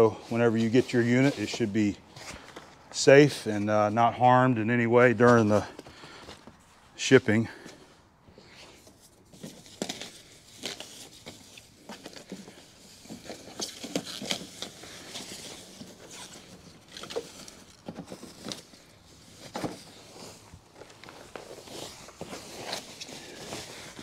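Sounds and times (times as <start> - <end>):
plastic bag crinkling: 9.0 - 24.0.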